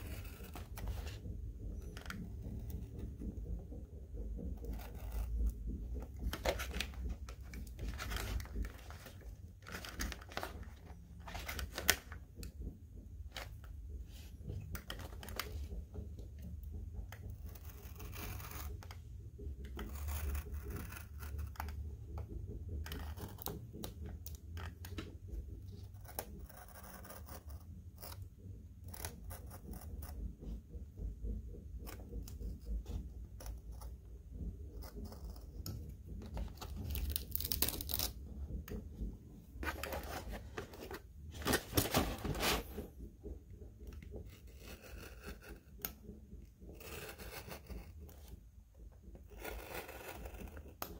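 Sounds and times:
hobby knife cutting card: 0:00.0 - 0:03.2, 0:04.4 - 0:12.4, 0:17.2 - 0:19.0, 0:19.6 - 0:21.8, 0:25.9 - 0:28.2, 0:34.7 - 0:38.2, 0:44.2 - 0:46.0, 0:46.6 - 0:48.3, 0:49.2 - 0:50.9.

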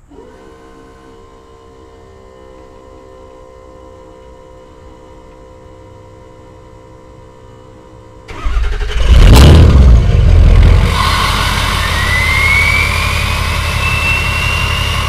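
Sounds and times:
faint steady hum: 0:00.0 - 0:15.0
diesel engine running loudly: 0:08.3 - 0:15.0.

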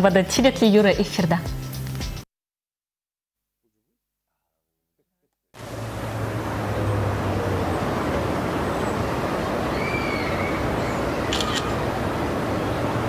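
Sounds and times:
distant traffic: 0:05.6 - 0:13.0.

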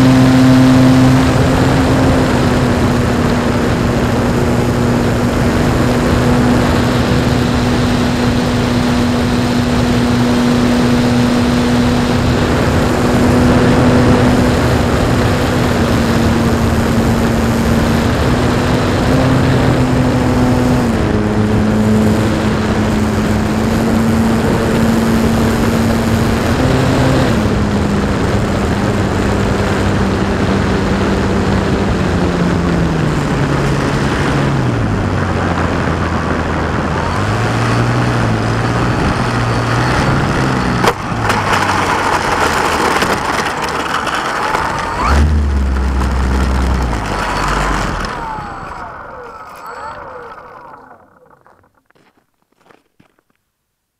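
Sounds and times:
model plane motor humming: 0:44.4 - 0:51.6.

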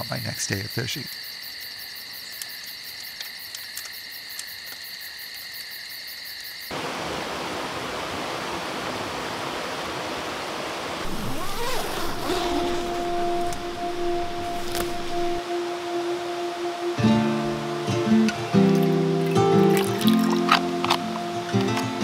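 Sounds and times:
night insects trilling: 0:00.0 - 0:07.6, 0:11.0 - 0:21.9
faint crackles: 0:11.0 - 0:15.4
sweeping tone: 0:11.0 - 0:18.2
creek flowing over stones: 0:18.3 - 0:22.0.

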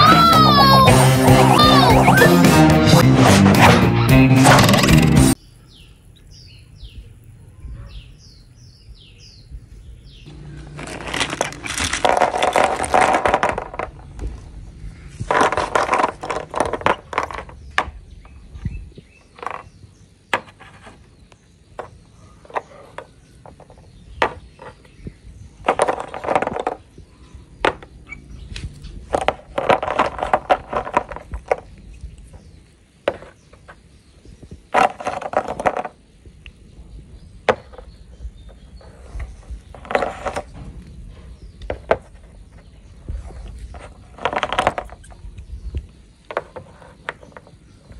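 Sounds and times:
plastic toys scraping: 0:02.9 - 0:05.4, 0:10.3 - 0:25.0, 0:25.6 - 0:27.0, 0:27.6 - 0:32.5, 0:33.1 - 0:33.8, 0:34.7 - 0:36.0, 0:37.5 - 0:47.9.

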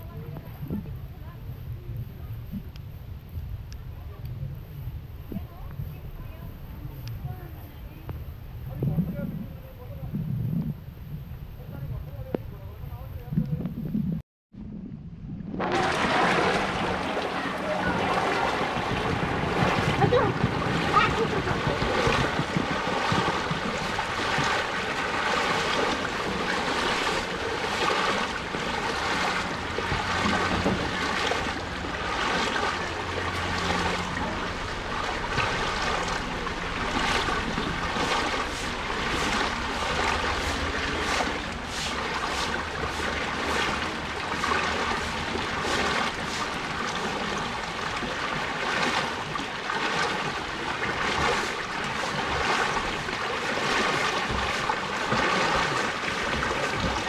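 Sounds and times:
low steady hum: 0:14.6 - 0:57.0
water rushing and splashing: 0:15.4 - 0:57.0.

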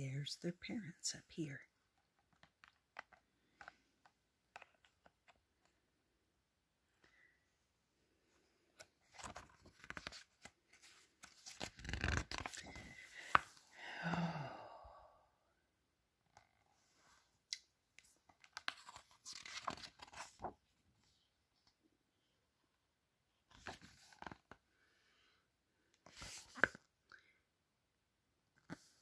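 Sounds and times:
book pages rustling: 0:01.9 - 0:05.8, 0:08.3 - 0:13.7, 0:18.0 - 0:20.8, 0:23.5 - 0:24.6, 0:26.0 - 0:26.9.

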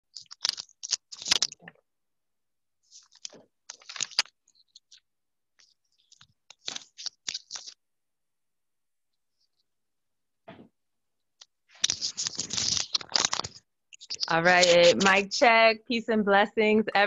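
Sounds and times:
handling noise on microphone: 0:11.7 - 0:15.3.

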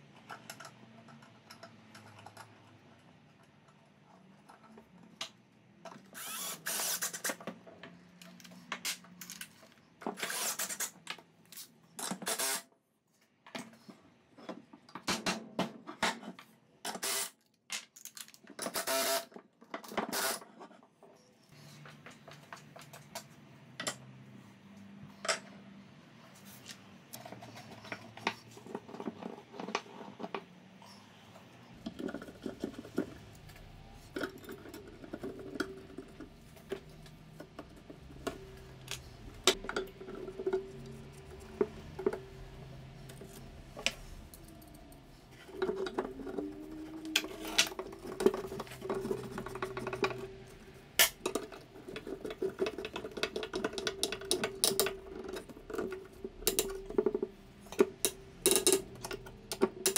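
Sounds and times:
metal parts knocking on wood: 0:47.0 - 0:59.9.

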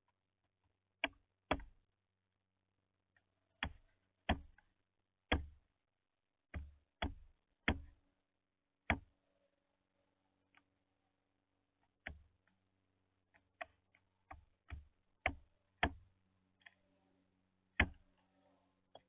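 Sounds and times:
bird bill knocking on wood: 0:01.0 - 0:01.7, 0:03.6 - 0:04.6, 0:05.3 - 0:05.6, 0:06.5 - 0:08.0, 0:08.9 - 0:09.1, 0:14.3 - 0:16.0, 0:17.8 - 0:18.0.

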